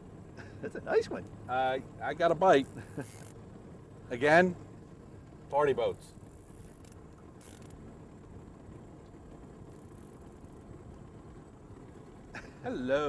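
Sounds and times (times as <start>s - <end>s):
fishing reel cranking: 2.5s - 3.4s, 6.3s - 7.8s.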